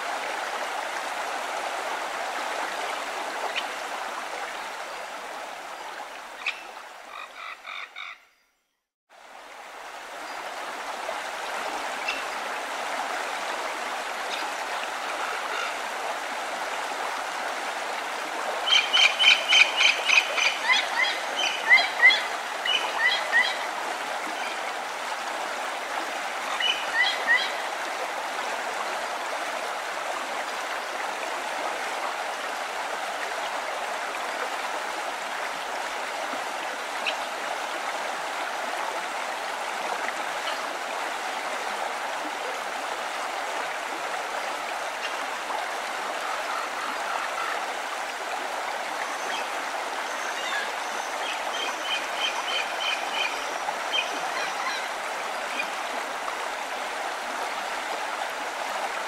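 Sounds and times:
stream water flowing: 0:00.0 - 0:08.2, 0:09.1 - 0:59.0
bird calls: 0:06.4 - 0:08.8.

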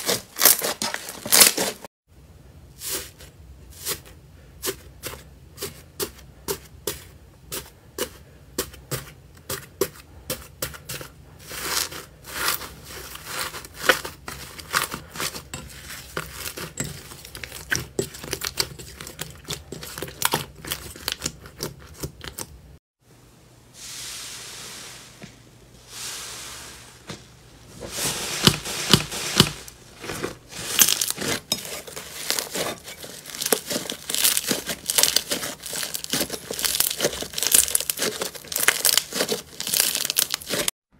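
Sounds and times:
slime crackling and squelching: 0:11.0 - 0:22.6, 0:27.8 - 0:40.8.

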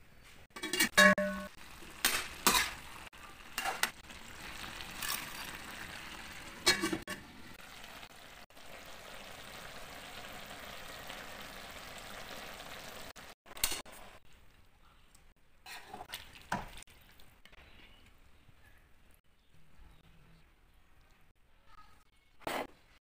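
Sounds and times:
metal pot lid clanking: 0:00.6 - 0:02.8, 0:06.6 - 0:07.2
food sizzling in a pan: 0:01.2 - 0:13.9.

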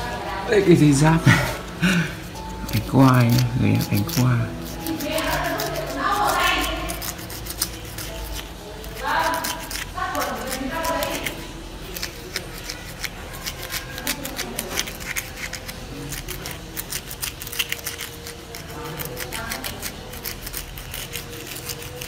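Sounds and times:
sandpaper scratching on wax: 0:02.6 - 0:22.0.

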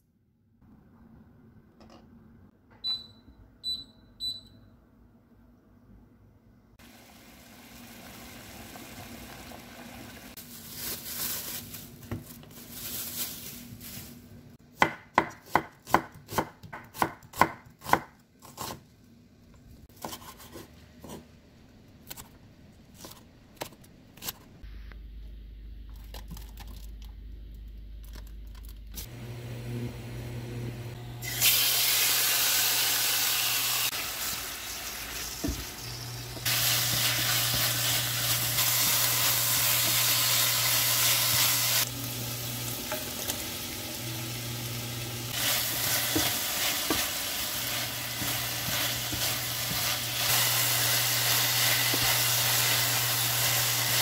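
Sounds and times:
knife chopping on wooden board: 0:14.8 - 0:18.8.

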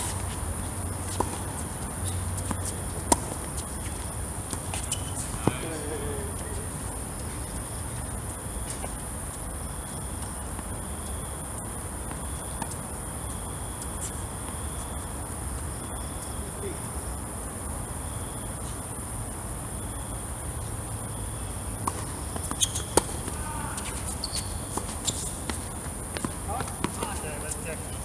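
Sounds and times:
night insects chirring: 0:00.0 - 0:28.0
tennis ball struck and bouncing: 0:21.8 - 0:27.2.

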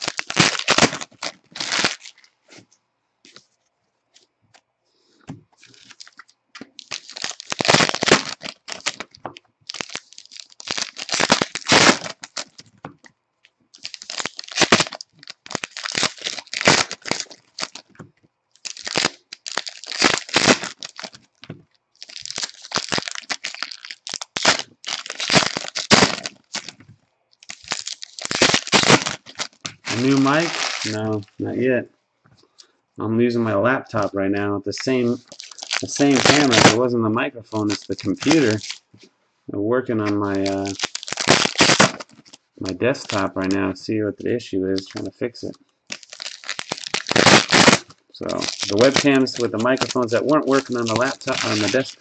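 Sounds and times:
plastic wrappers tearing and crinkling: 0:00.0 - 0:02.4, 0:05.6 - 0:12.8, 0:13.7 - 0:18.0, 0:18.6 - 0:26.8, 0:27.4 - 0:31.3, 0:34.7 - 0:36.9, 0:37.5 - 0:38.9, 0:40.0 - 0:43.6, 0:44.8 - 0:45.1, 0:45.9 - 0:52.0.

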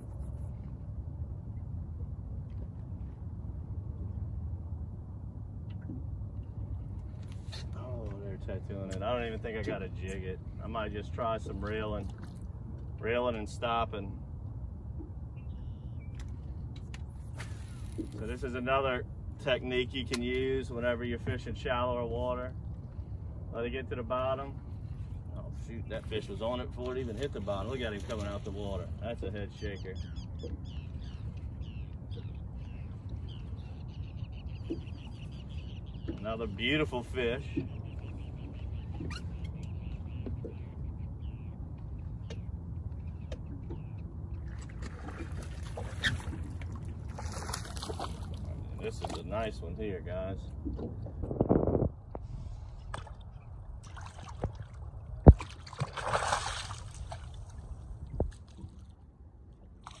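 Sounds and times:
steady low rumble: 0:00.0 - 0:28.1, 0:46.4 - 0:59.9
fish splashing at surface: 0:53.8 - 0:57.6.

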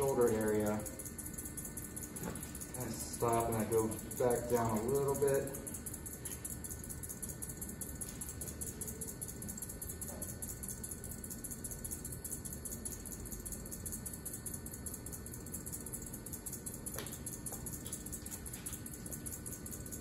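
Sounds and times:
potter's wheels humming: 0:00.0 - 0:11.4.

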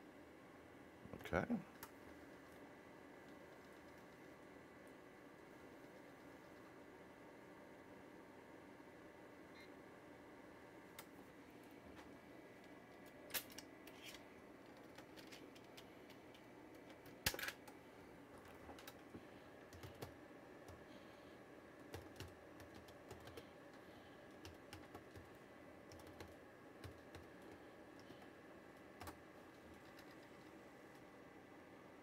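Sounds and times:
steady low hum: 0:00.0 - 0:32.0
keyboard typing: 0:03.2 - 0:04.3, 0:13.9 - 0:17.8, 0:18.4 - 0:20.8, 0:21.8 - 0:31.1.

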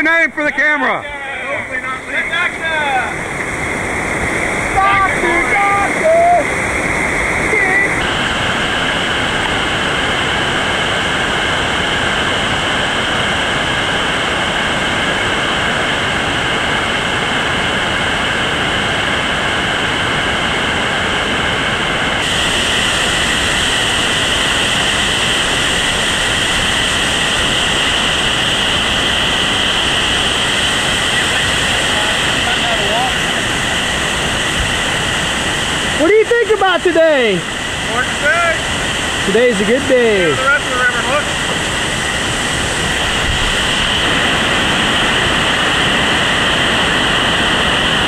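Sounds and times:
whitewater rapids rushing: 0:00.6 - 0:12.9.

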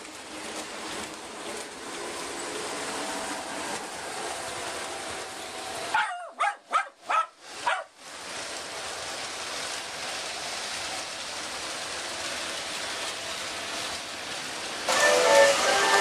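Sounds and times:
toy trains running on metal track: 0:00.0 - 0:16.0
dog barking: 0:05.9 - 0:07.9.

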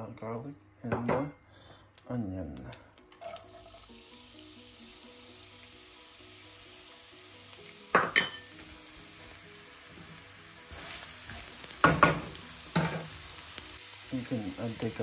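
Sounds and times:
onion and garlic sizzling in oil: 0:03.2 - 0:15.0.

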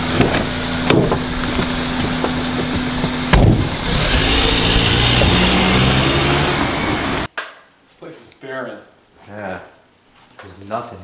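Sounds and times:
car engine idling and revving: 0:00.0 - 0:07.3.

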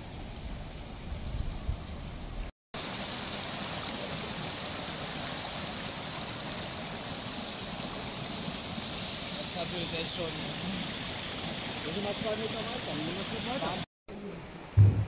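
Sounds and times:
floodwater rushing and splashing: 0:02.8 - 0:13.9
low rumbling noise: 0:14.8 - 0:15.0.

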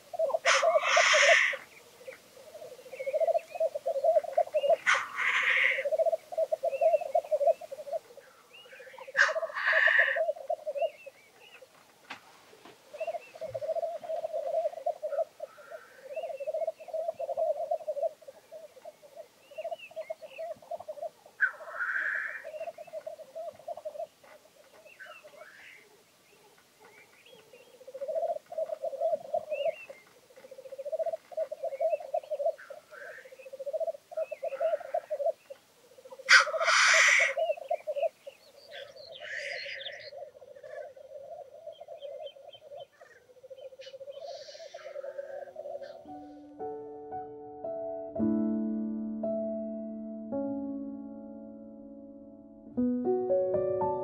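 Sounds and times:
grouse bubbling song: 0:00.0 - 0:11.7, 0:12.9 - 0:25.5, 0:27.2 - 0:46.0
grouse hissing call: 0:00.0 - 0:11.7, 0:12.8 - 0:26.0, 0:27.3 - 0:46.4.

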